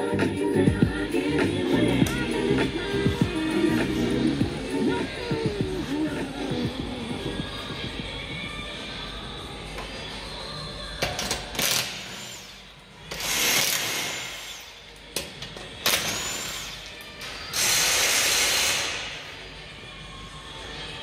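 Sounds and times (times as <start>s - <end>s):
background music: 0.0s - 21.0s
impact wrench whirring: 11.6s - 14.8s, 15.9s - 19.2s.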